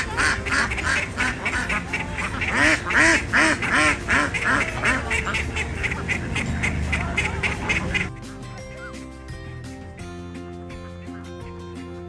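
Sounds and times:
ducks quacking: 0.0s - 9.0s.

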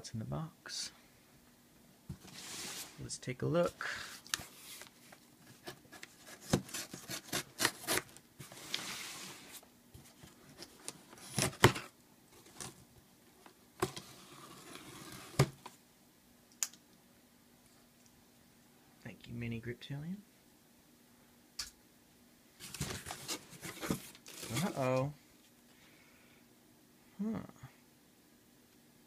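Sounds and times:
knife slicing packing tape: 6.5s - 8.1s.

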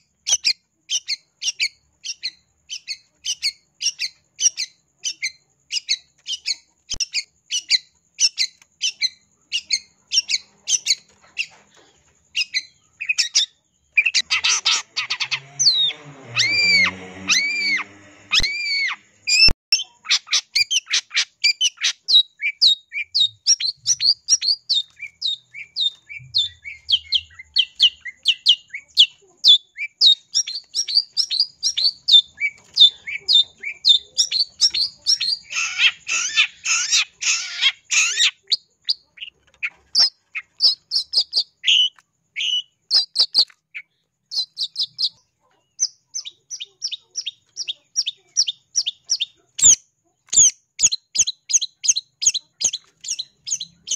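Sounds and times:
bird chirping: 0.0s - 53.9s
bird harsh scratchy chatter: 14.0s - 22.2s, 23.0s - 43.5s.

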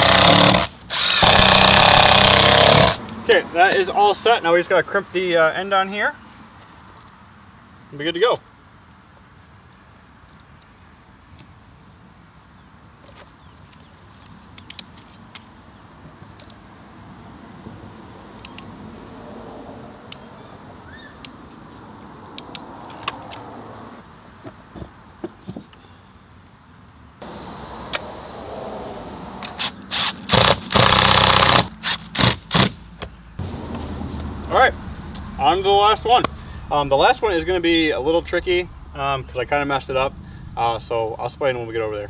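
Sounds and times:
cordless drill driving screws: 0.0s - 3.0s, 29.5s - 32.7s.

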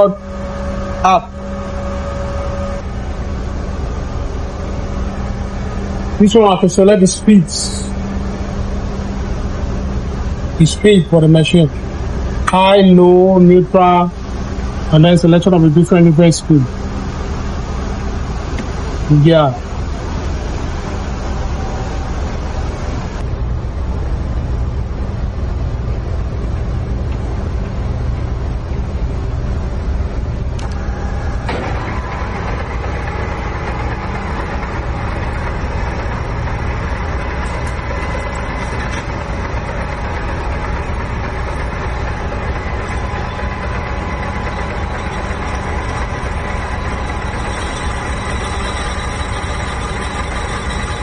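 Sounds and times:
lathe running: 0.0s - 23.3s, 30.0s - 51.0s
engine room drone: 0.0s - 51.0s
faint whines: 0.0s - 51.0s.

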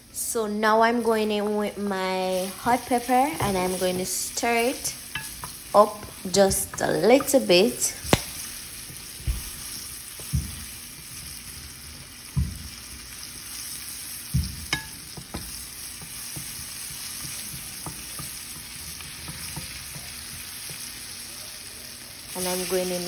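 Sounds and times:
food sizzling in frying pan: 0.7s - 23.0s
spoon knocking against pan: 14.3s - 20.8s.

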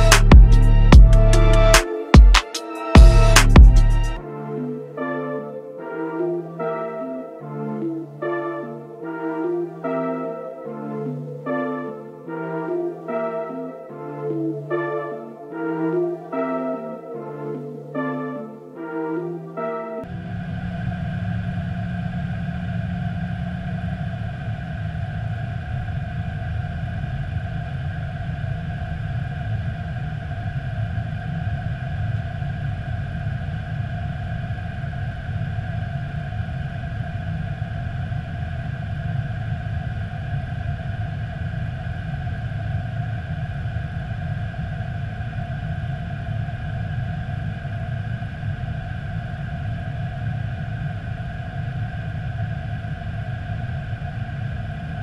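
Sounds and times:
steady higher hums: 0.0s - 55.0s.

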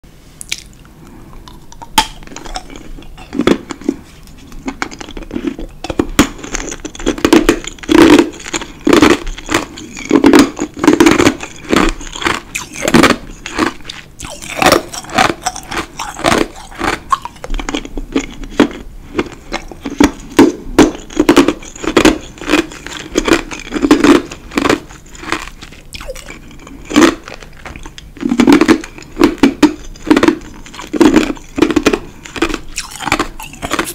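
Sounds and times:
ice crunching in mouth: 1.4s - 33.9s.

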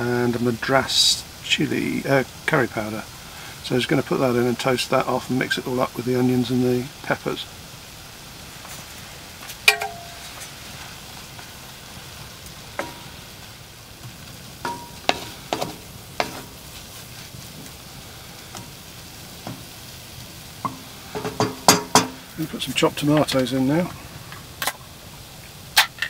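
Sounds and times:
onions frying: 0.0s - 26.0s
spatula knocking against pot: 14.7s - 16.5s, 20.7s - 22.2s.

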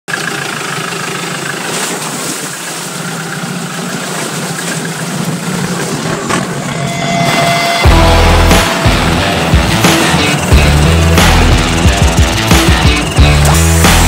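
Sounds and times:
rushing noise: 2.9s - 14.0s
motor running steadily: 7.8s - 14.0s.

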